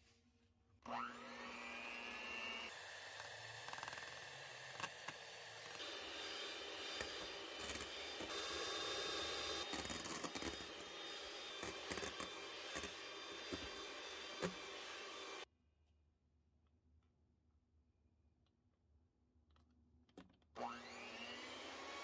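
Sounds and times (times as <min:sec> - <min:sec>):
electric hand mixer running: 0:00.8 - 0:15.5, 0:20.6 - 0:22.0.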